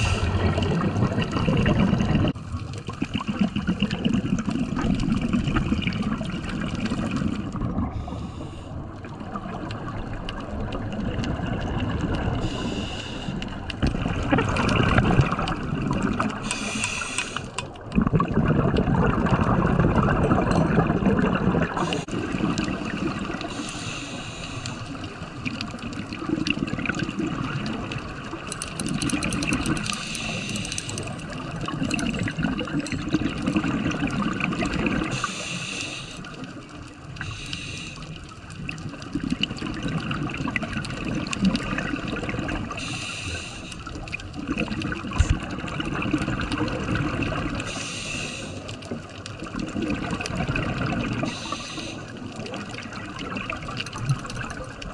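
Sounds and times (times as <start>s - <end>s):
bubbling exhalation: 0.0s - 8.1s, 13.7s - 23.6s, 38.8s - 43.0s
hissing regulator inhalation: 16.4s - 17.6s, 23.5s - 25.0s, 29.9s - 31.1s, 35.1s - 36.3s, 37.2s - 38.1s, 42.8s - 43.9s, 47.7s - 48.7s, 51.2s - 52.2s.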